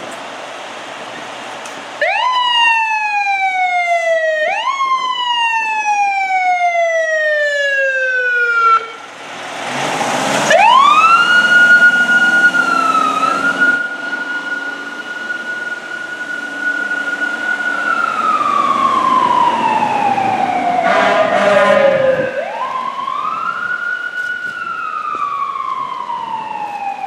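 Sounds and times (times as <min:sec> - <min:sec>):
fire engine sirens wailing: 0:01.4 - 0:27.0
vehicle rushing past: 0:08.7 - 0:23.6.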